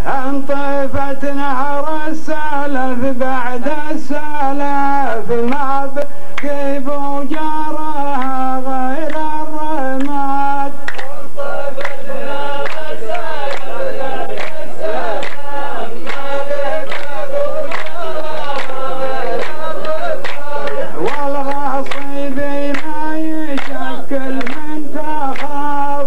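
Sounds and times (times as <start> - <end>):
men chanting in unison: 0.0 - 26.0
hand claps: 5.4 - 26.0.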